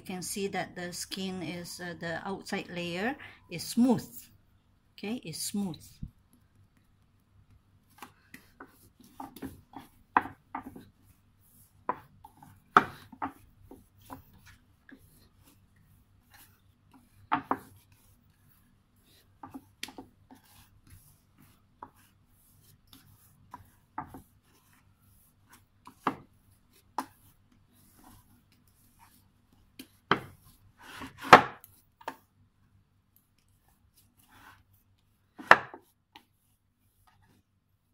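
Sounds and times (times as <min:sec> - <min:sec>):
dough thumping on wooden board: 0:12.7 - 0:13.8, 0:17.3 - 0:17.8, 0:30.0 - 0:30.4, 0:31.0 - 0:31.7, 0:35.4 - 0:35.8.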